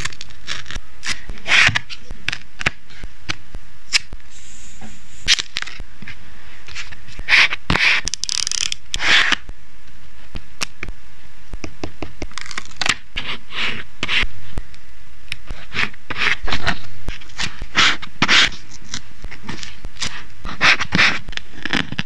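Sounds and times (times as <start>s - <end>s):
tape peeling and tearing: 0.0s - 1.8s, 7.8s - 9.4s, 12.3s - 13.0s.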